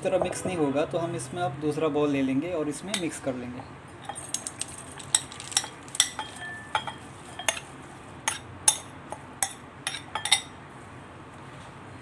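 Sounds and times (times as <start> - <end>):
spoon scraping bowl: 4.0 - 7.7
spoon clinking against glass bowls: 4.0 - 10.6.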